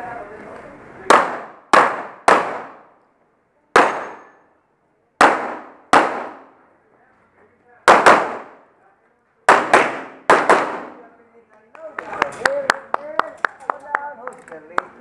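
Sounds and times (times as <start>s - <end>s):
pistol shots ringing steel plates: 3.8s - 4.5s.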